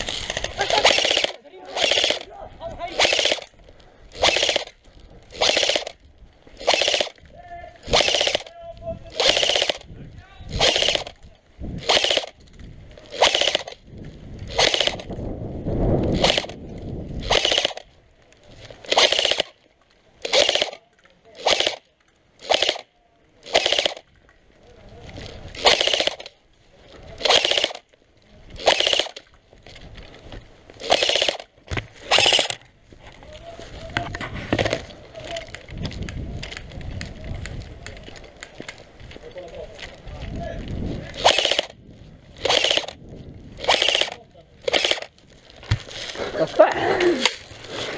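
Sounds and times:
airsoft rifle rattling bursts: 0.0 - 7.2, 7.8 - 12.4, 13.0 - 15.3, 16.1 - 17.9, 18.8 - 24.2, 25.4 - 26.4, 27.2 - 27.9, 28.5 - 29.3, 30.8 - 32.7, 41.0 - 46.6.

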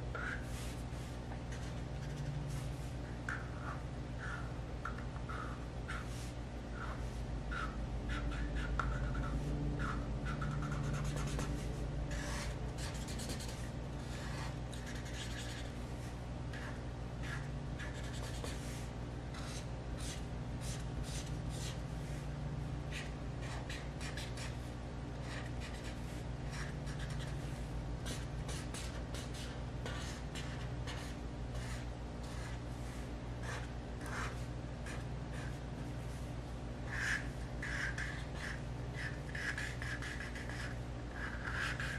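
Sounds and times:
marker scribbling on paper: 5.3 - 15.8, 16.5 - 21.8, 22.9 - 35.6, 36.9 - 41.9.

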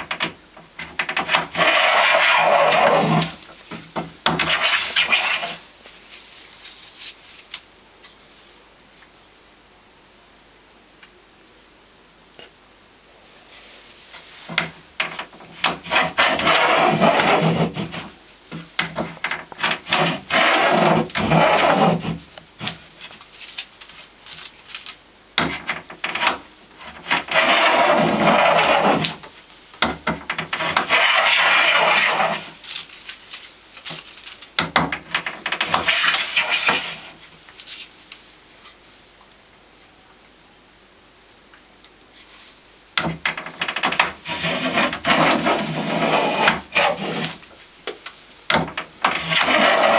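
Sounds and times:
hand plane cutting wood: 1.0 - 3.4, 4.3 - 5.6, 15.6 - 18.1, 19.6 - 22.2, 26.0 - 29.2, 30.5 - 32.6, 35.6 - 37.0, 43.9 - 47.4, 49.0 - 49.9.

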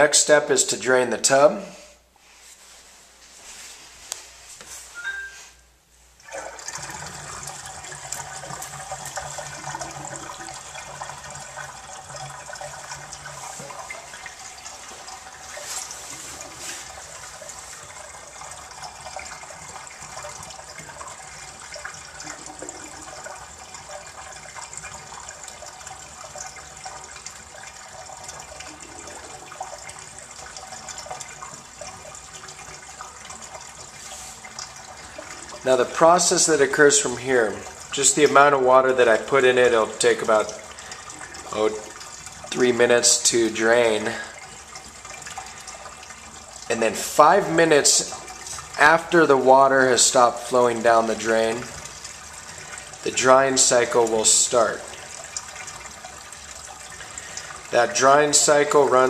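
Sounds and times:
water rushing down a drain: 6.2 - 59.0.

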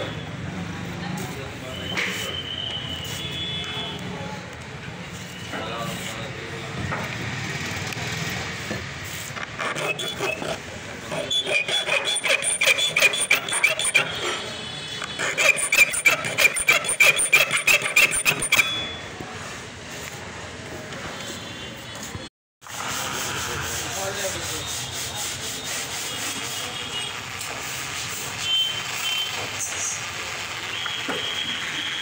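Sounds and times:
file scraping saw teeth: 9.2 - 19.0.

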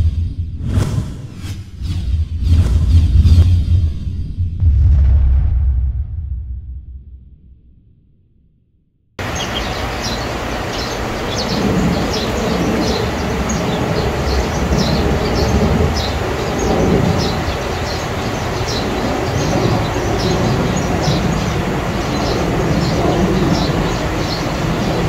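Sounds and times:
cicadas calling: 9.2 - 25.0.

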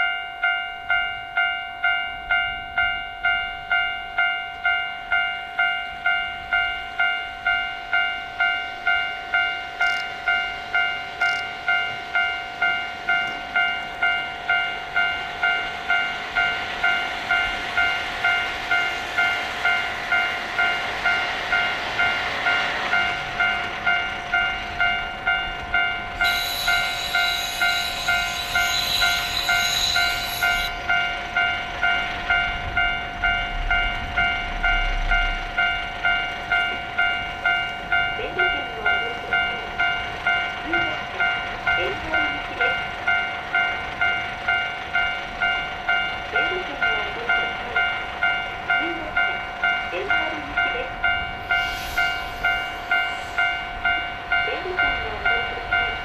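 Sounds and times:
diesel railcar rolling: 0.0 - 56.0
level crossing bell ringing: 0.0 - 56.0
hiss: 51.5 - 53.4.

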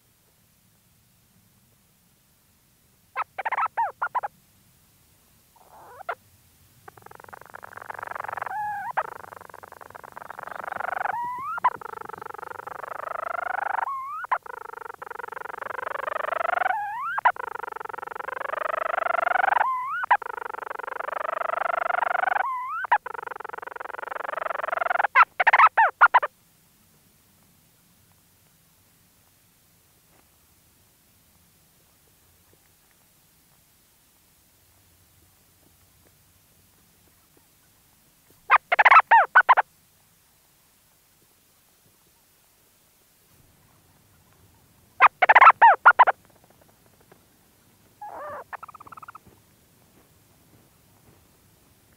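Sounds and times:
bird purring churr: 3.2 - 4.3, 5.6 - 6.2, 6.8 - 26.3, 38.4 - 39.6, 45.0 - 49.3
rapid stuttering bird calls: 3.2 - 4.3, 5.6 - 6.2, 6.8 - 26.3, 38.4 - 39.6, 45.0 - 47.2, 48.0 - 49.3.

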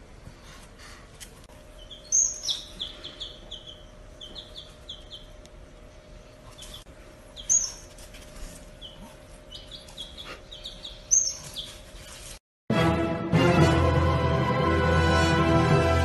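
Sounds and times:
chick peeping: 1.8 - 5.5, 6.4 - 12.2
music: 12.7 - 16.0.

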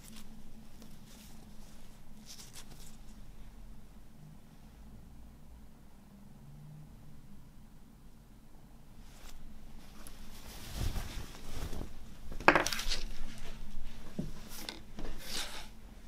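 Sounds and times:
fabric rustling: 0.0 - 3.6, 8.9 - 15.9.

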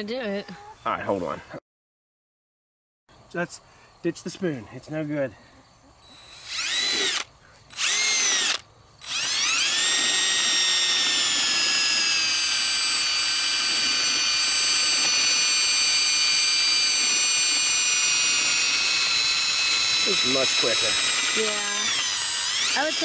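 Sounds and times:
cordless drill whining: 6.1 - 23.0.

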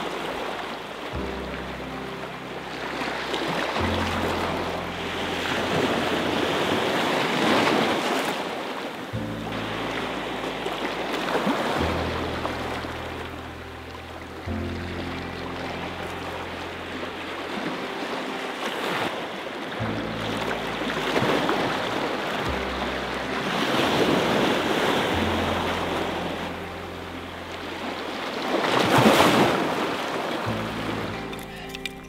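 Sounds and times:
waves washing over rocky shore: 5.2 - 12.7, 27.7 - 32.0.

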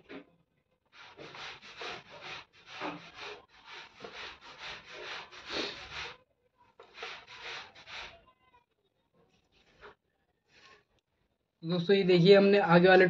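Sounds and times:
rubbing or scraping strokes: 0.9 - 6.2, 6.8 - 8.3.

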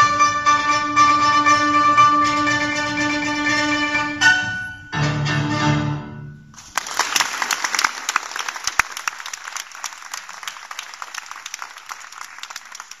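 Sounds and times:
audience applause: 6.6 - 13.0.

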